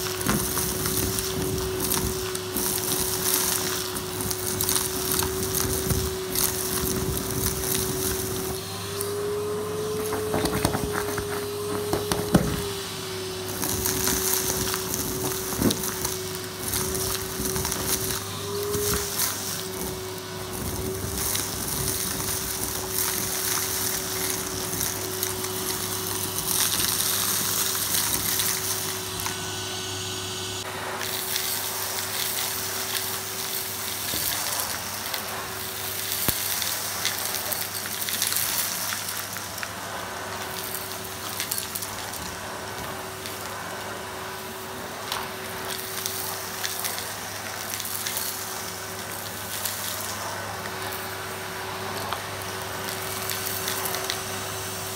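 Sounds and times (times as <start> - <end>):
debris rattling through vacuum wand: 0.0 - 29.5
vacuum cleaner motor whine: 0.0 - 54.9.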